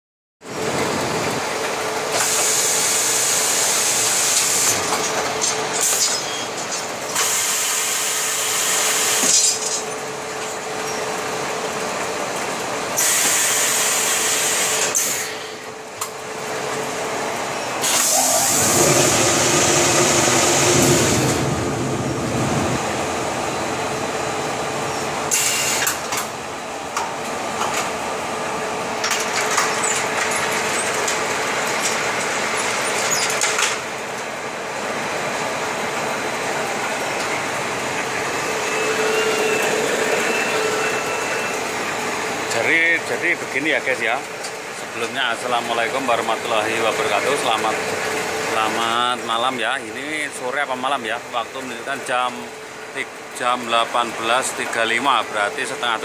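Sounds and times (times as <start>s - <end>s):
machine humming: 0.5s - 43.5s
heavy machine rumble: 15.7s - 25.4s.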